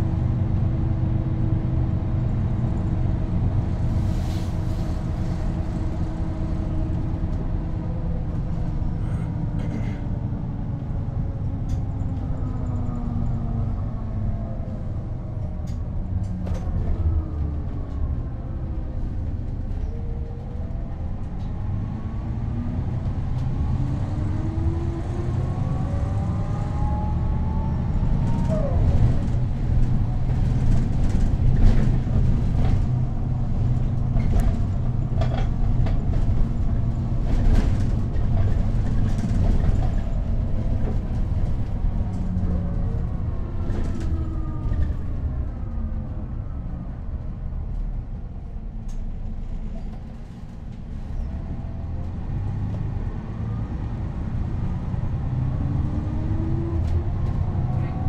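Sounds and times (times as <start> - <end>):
bus engine drone: 0.0 - 58.0.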